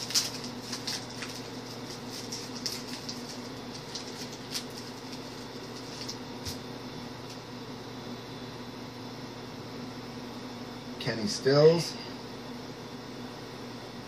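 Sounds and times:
cards clicking and rustling: 0:00.0 - 0:06.6
steady electrical hum: 0:00.0 - 0:14.0.

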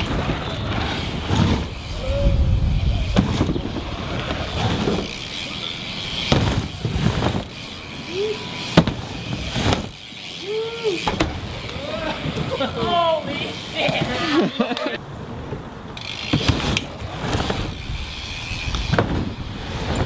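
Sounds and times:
bike tyres rolling on wooden ramp: 0:00.0 - 0:20.0
high calls or shouts: 0:01.8 - 0:03.5
bike landing knocks on ramp: 0:06.2 - 0:07.5, 0:08.7 - 0:10.0, 0:11.0 - 0:11.5, 0:18.8 - 0:19.4.

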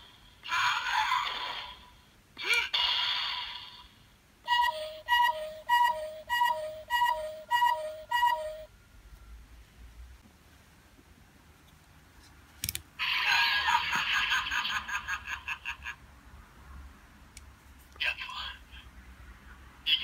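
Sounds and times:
two-tone electronic beep: 0:04.5 - 0:08.7.

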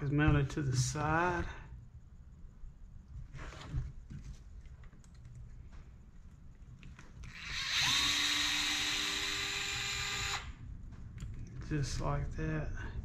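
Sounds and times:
electric screwdriver whine: 0:07.2 - 0:10.5.

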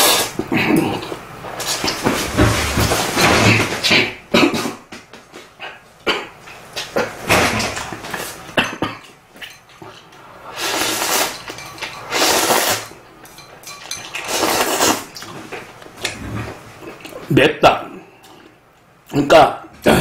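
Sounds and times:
person slurping noodles: 0:00.0 - 0:02.0, 0:10.4 - 0:11.4, 0:12.1 - 0:12.9, 0:14.2 - 0:15.1.

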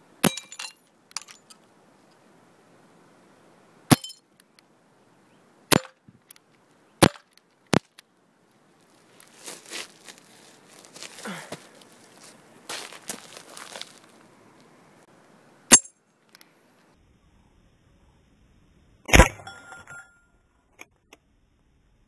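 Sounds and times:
irregular rustling: 0:08.8 - 0:14.7
glass ringing: 0:19.4 - 0:20.3.

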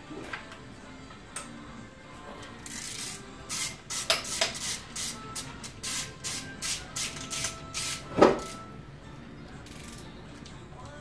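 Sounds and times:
hand ratchet clicking: 0:02.6 - 0:05.1.

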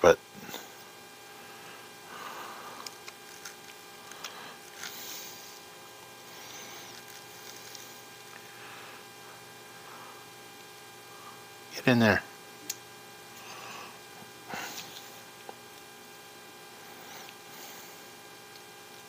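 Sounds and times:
steady electrical hum: 0:00.0 - 0:19.0.

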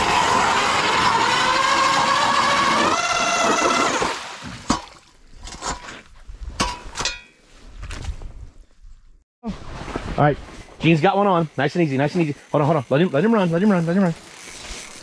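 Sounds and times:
ice auger motor whine: 0:00.0 - 0:04.2.

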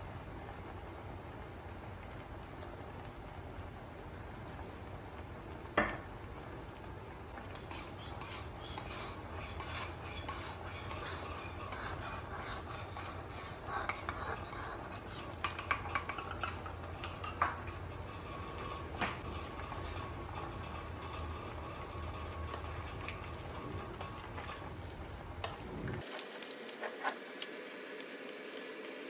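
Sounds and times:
spoon clacking against pan: 0:07.5 - 0:17.9
wooden spoon scraping a wok: 0:07.5 - 0:27.2.

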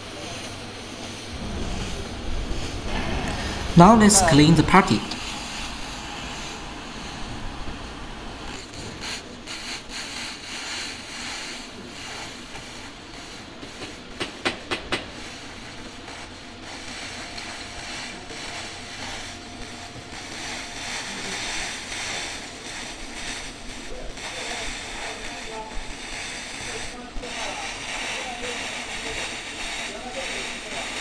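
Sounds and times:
laser cleaning hiss with fine ticks: 0:08.3 - 0:31.0.

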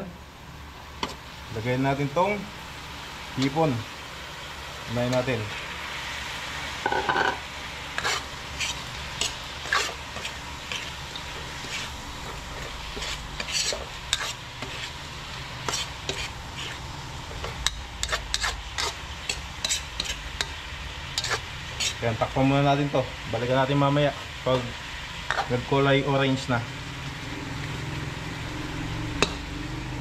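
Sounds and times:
shrimp sizzling in a pan: 0:00.0 - 0:30.0
utensil scraping a pan: 0:06.8 - 0:20.6, 0:21.2 - 0:22.2, 0:25.3 - 0:25.6.

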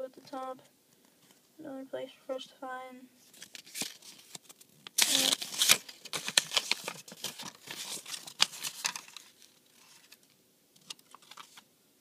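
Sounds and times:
paper rustling and flicking: 0:03.3 - 0:11.6.

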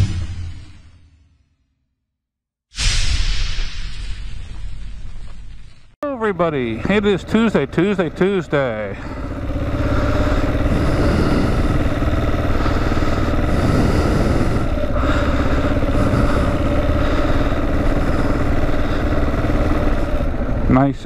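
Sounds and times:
motorcycle engine running: 0:06.0 - 0:21.0.

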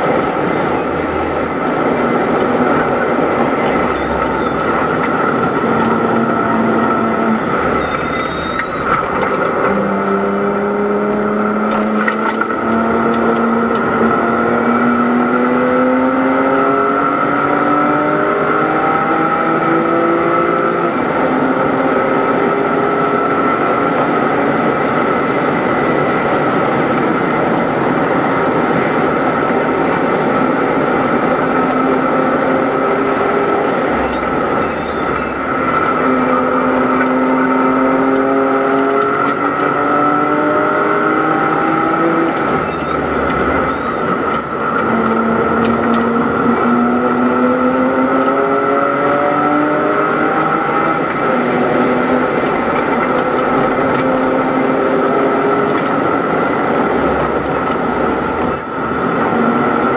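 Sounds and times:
race car engine under power: 0:00.0 - 0:59.9
wind and road noise: 0:00.0 - 0:59.9.

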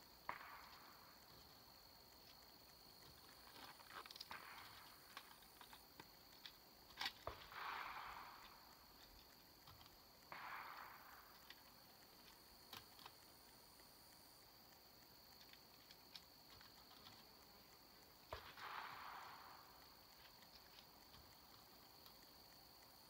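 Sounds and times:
gear handling clicks and rustles: 0:00.6 - 0:07.5, 0:11.3 - 0:18.6, 0:19.7 - 0:23.0.

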